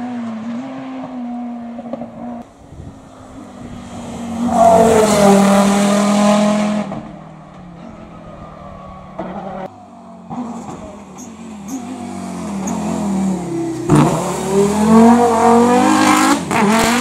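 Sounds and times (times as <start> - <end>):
race car engine accelerating: 2.9 - 9.7, 10.3 - 17.0.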